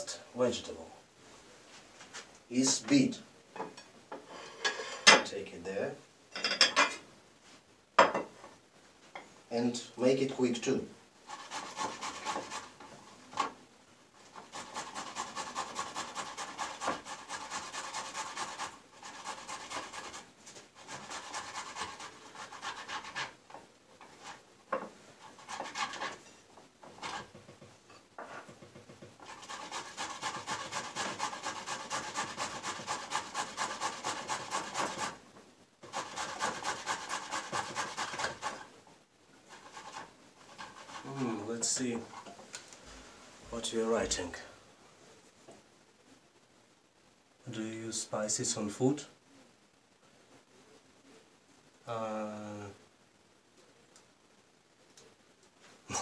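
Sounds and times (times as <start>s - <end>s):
beet rasping on hand grater: 11.3s - 12.8s, 14.3s - 23.4s, 25.3s - 26.2s, 29.2s - 35.2s, 35.8s - 38.7s, 39.5s - 41.2s.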